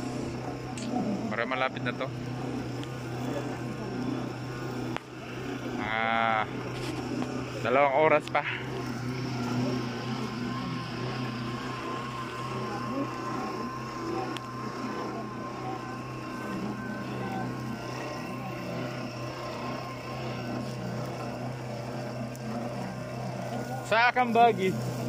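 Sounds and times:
faint wavering whine: 0.0 - 25.0
running motor drone: 0.0 - 25.0.

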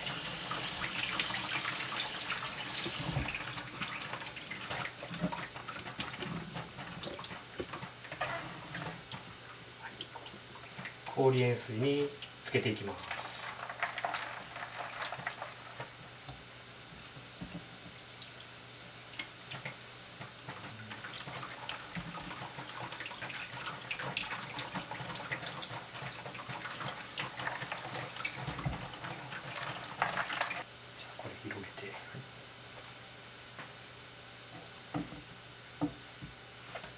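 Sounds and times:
water splashing in a sink: 0.0 - 11.3, 17.0 - 30.6.

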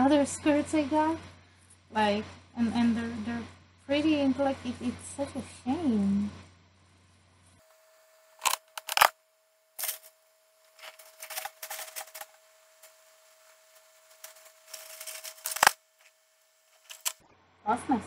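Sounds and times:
objects being rummaged through: 10.8 - 12.3, 14.1 - 15.8.

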